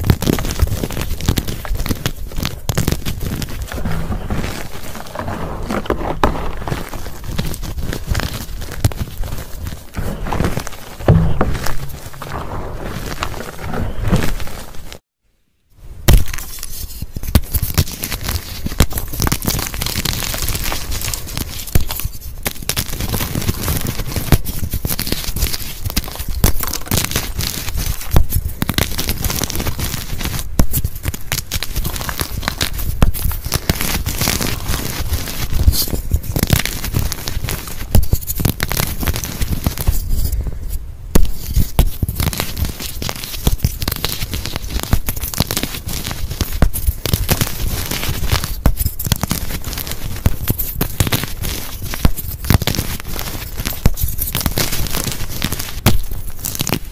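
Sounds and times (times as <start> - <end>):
chalk crunching and crackling: 0.0 - 15.0, 16.1 - 56.9
chalk pieces snapping: 41.2 - 56.8.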